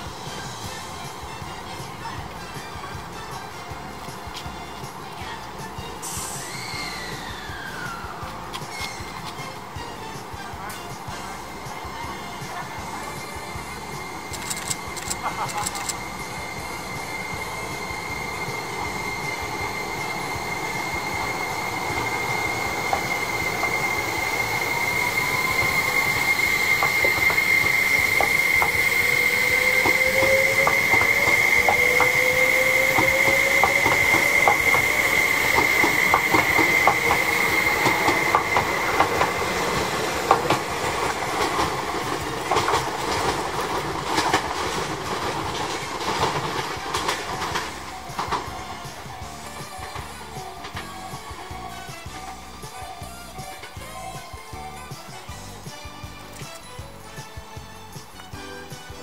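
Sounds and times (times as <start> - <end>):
steady high whine: 0.0 - 43.1
electric train motors whining: 0.0 - 59.0
wheels clicking over rail joints: 0.2 - 59.0.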